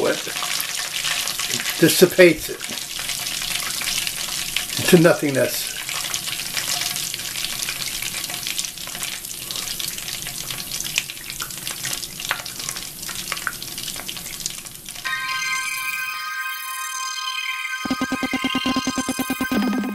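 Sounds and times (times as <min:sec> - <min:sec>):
electronic music: 0:15.9 - 0:19.9.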